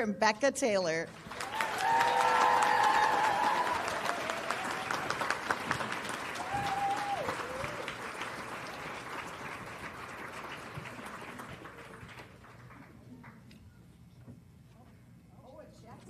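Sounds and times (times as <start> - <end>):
audience applauding: 1.1 - 13.4.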